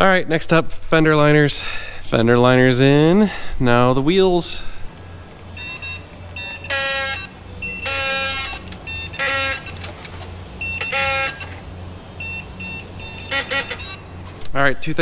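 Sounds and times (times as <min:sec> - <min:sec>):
steady low hum: 0:00.0 - 0:15.0
impact wrench bursts: 0:05.6 - 0:14.3.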